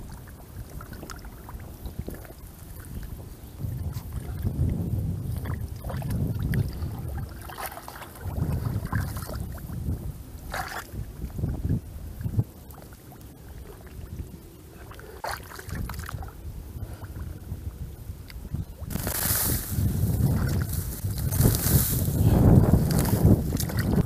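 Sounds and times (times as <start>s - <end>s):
wind buffeting microphone: 0.0s - 24.0s
hands sloshing in muddy water: 5.3s - 9.7s, 14.8s - 16.4s, 18.9s - 24.0s.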